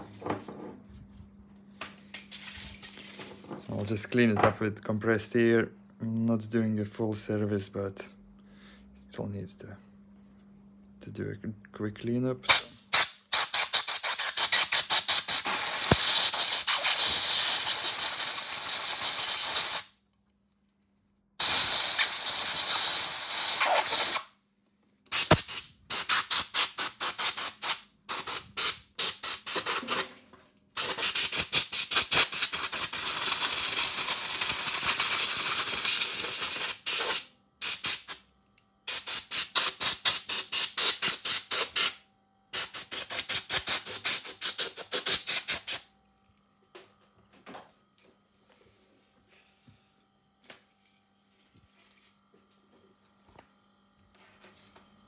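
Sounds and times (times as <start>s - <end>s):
compressed air hissing: 12.5s - 19.9s, 21.4s - 24.3s, 25.1s - 30.1s, 30.8s - 38.2s, 38.9s - 45.8s.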